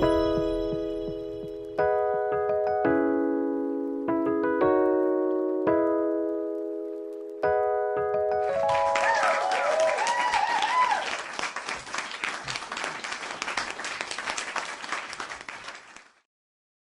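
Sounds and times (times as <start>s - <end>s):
piano chord: 0.0s - 9.9s
crowd applauding and cheering: 8.4s - 16.2s.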